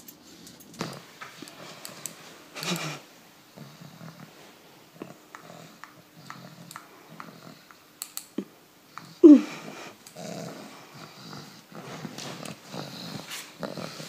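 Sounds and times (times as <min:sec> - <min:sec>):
soft clicks: 0:06.7 - 0:08.3
dog grunting and snuffling: 0:09.2 - 0:14.0.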